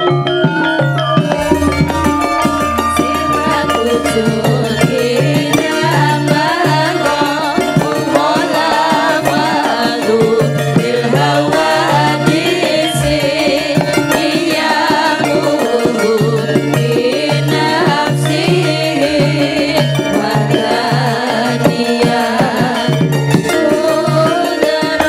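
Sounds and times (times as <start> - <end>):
live band playing melody: 0.0 - 25.0
low bass notes: 1.3 - 6.6
women singing together: 1.6 - 25.0.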